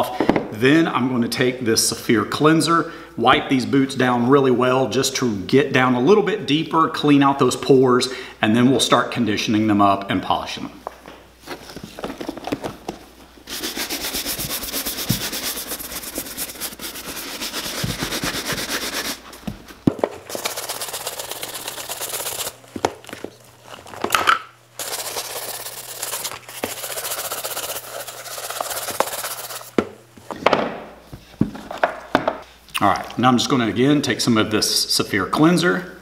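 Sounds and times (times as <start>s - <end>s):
brush scrubbing leather boot: 13.5s - 19.3s, 20.3s - 22.6s, 24.8s - 29.7s.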